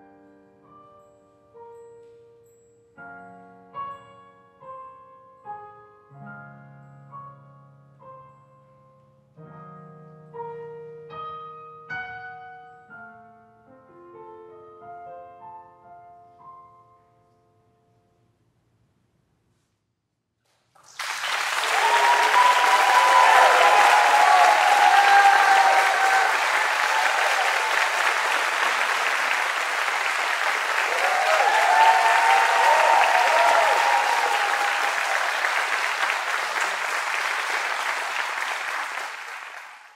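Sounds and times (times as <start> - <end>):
audience applauding: 20.8 - 39.9
audience whooping: 21.0 - 39.8.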